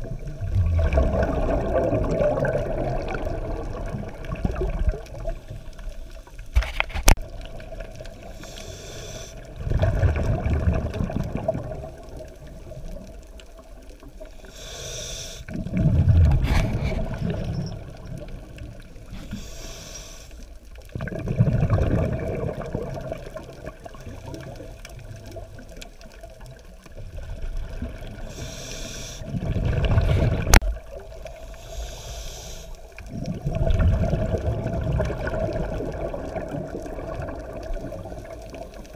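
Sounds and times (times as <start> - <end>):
gurgle of exhaled bubbles: 0.0 - 6.4, 9.4 - 14.2, 15.5 - 19.2, 20.8 - 28.4, 29.2 - 31.5, 33.0 - 38.9
regulator hissing inhale: 8.2 - 9.5, 14.4 - 15.5, 19.1 - 20.5, 28.2 - 29.3, 31.3 - 33.1.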